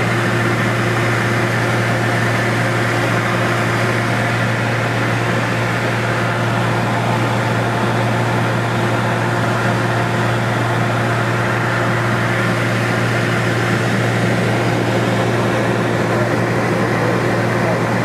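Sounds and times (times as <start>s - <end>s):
light aircraft engine droning: 0.0s - 18.0s.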